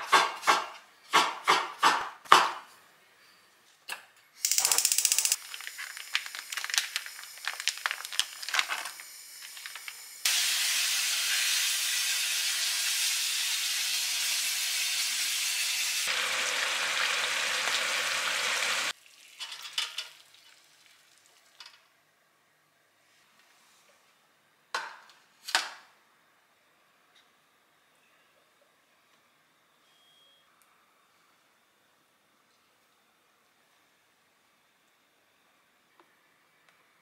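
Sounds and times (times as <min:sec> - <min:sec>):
meat crackling and sizzling in pan: 0:05.4 - 0:18.9.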